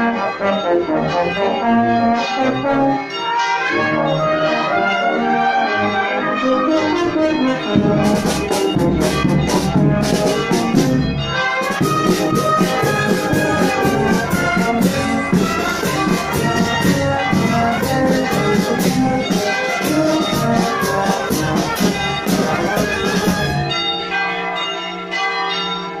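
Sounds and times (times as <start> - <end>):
brass band playing a march: 0.0 - 24.4
drum beat: 7.8 - 11.0, 11.6 - 23.7.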